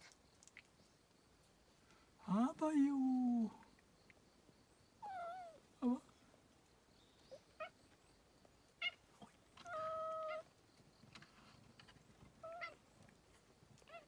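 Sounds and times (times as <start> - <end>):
cat meowing: 5.0 - 5.6, 9.6 - 10.5, 12.4 - 12.8.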